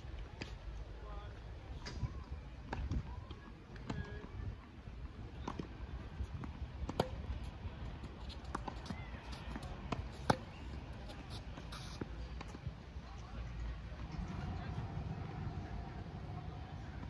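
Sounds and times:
tennis ball hit and bouncing: 0:05.3 - 0:12.7.

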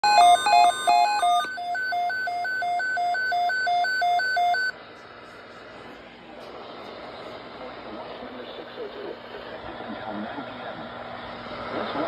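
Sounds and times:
electronic alert beeps: 0:00.0 - 0:04.7.

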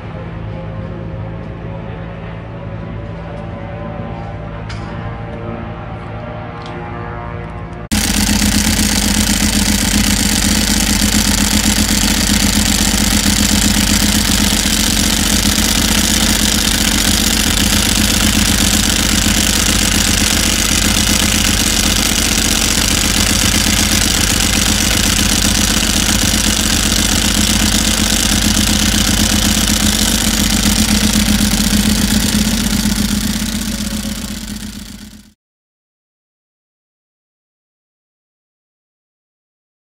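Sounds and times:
motorcycle engine idling: 0:07.9 - 0:35.4.

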